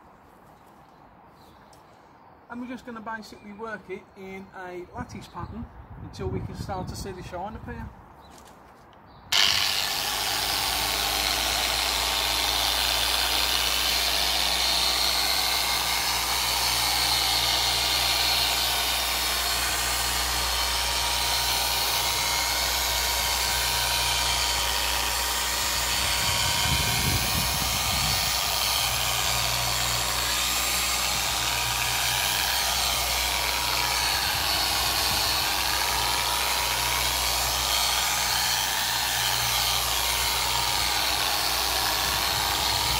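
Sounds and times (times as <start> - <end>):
polisher running: 9.4 - 42.9.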